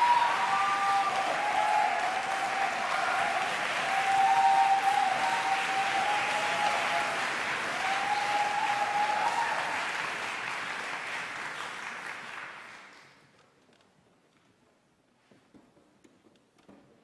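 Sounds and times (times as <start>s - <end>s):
audience applauding: 0.0s - 13.3s.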